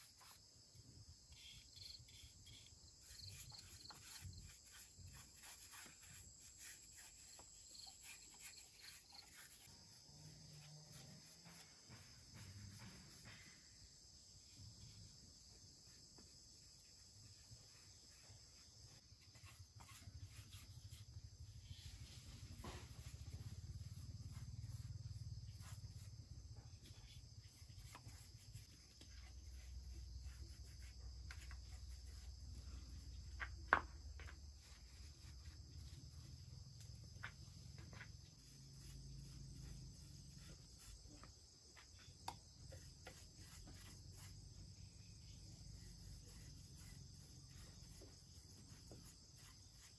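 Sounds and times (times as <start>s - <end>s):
high-pitched insect chorus: 0.0s - 49.9s
quiet taps and knocks: 33.3s - 34.5s.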